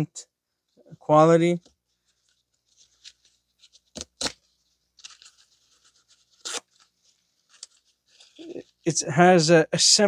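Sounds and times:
rustling and scraping of paper: 1.8s - 8.9s.

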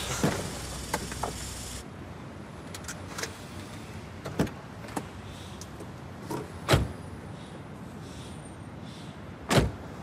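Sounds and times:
street traffic hum: 0.0s - 10.0s
car door shutting: 9.5s - 9.8s.

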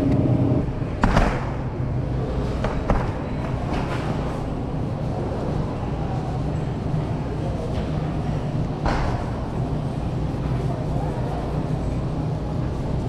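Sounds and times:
refrigerator hum: 0.0s - 13.0s.

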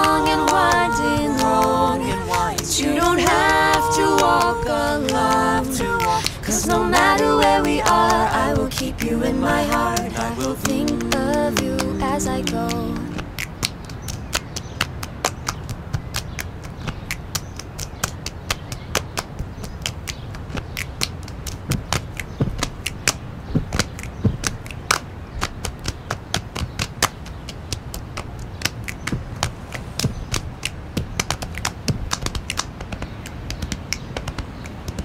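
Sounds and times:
finger snaps: 0.0s - 6.4s, 27.9s - 35.0s
hand claps: 0.0s - 35.0s.

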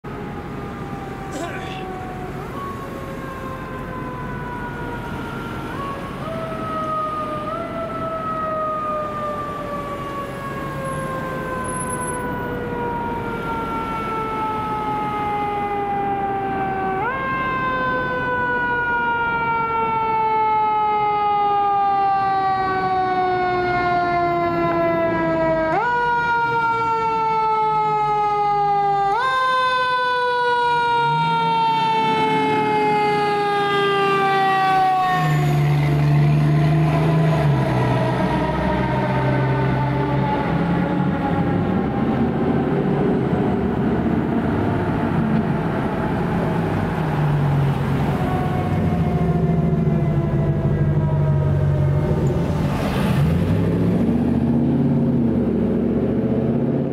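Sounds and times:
diesel engine drone: 0.0s - 56.9s
fire engine siren wailing: 0.0s - 56.9s.

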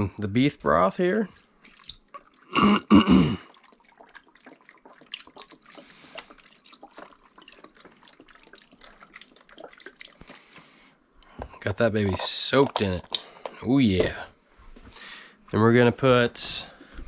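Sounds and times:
broth pouring and splashing: 1.3s - 10.9s, 11.6s - 14.3s.

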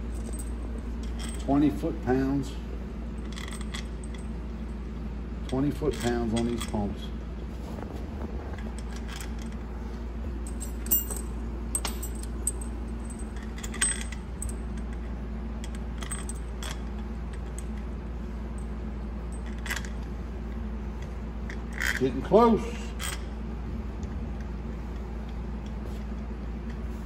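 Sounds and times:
steady low hum: 0.0s - 27.0s
light metallic clinks: 10.4s - 14.6s.

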